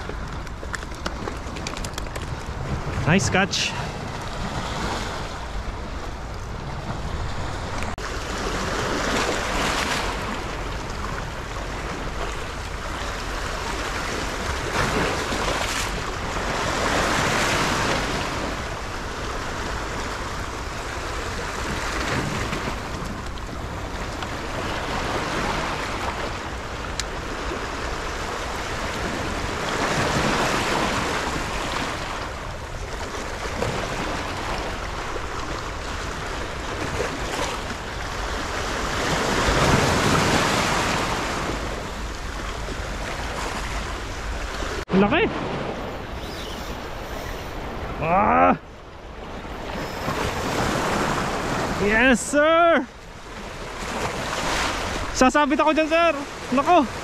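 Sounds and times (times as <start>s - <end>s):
wind rumbling on microphone: 0.0s - 51.9s
waves washing over rocks: 0.0s - 57.0s.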